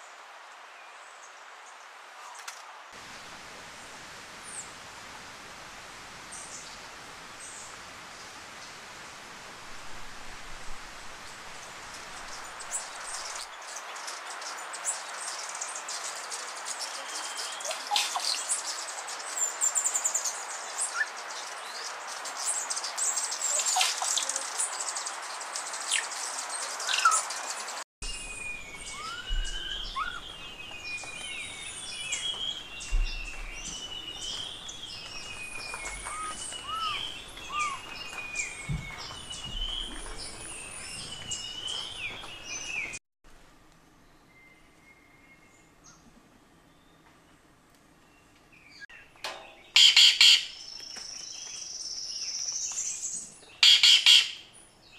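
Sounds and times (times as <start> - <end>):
steady hiss: 0.0 - 42.6
birds chirping and calling: 12.0 - 43.0, 48.9 - 54.5
bird falling whistles: 28.8 - 30.2.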